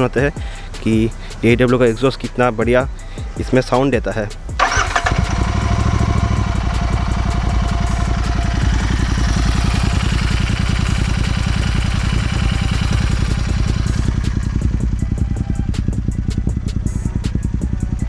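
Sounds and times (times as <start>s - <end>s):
motorcycle engine idling: 4.5s - 18.0s.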